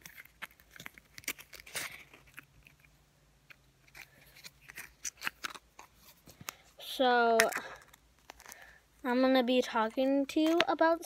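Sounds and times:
slime squishing and crackling: 0.0s - 2.9s, 3.9s - 6.1s, 7.1s - 8.7s.

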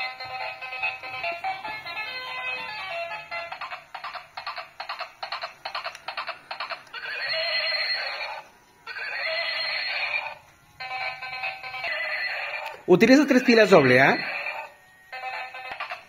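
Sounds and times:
electronic clip-clop hoofbeats: 0.0s - 8.4s
electronic horse neigh: 3.5s - 16.0s.

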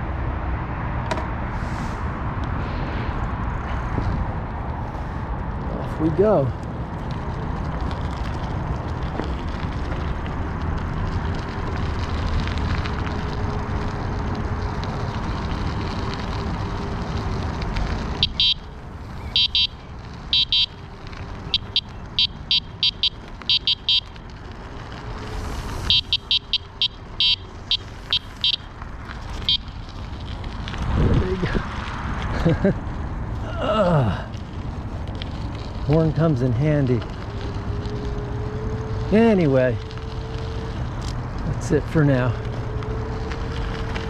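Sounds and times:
wind and bike riding noise: 0.0s - 44.0s
electronic bike horn beeping: 18.2s - 20.8s, 21.5s - 24.2s, 25.8s - 28.7s, 29.4s - 29.7s.

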